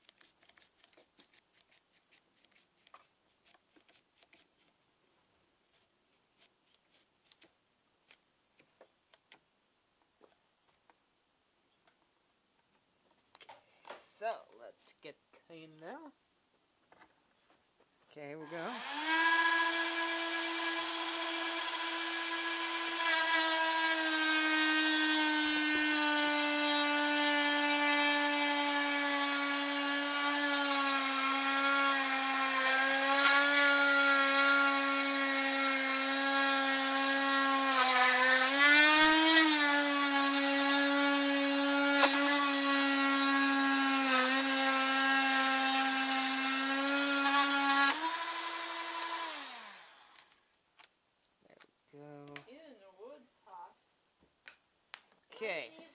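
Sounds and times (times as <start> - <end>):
rotary tool motor whining: 18.5 - 50.4.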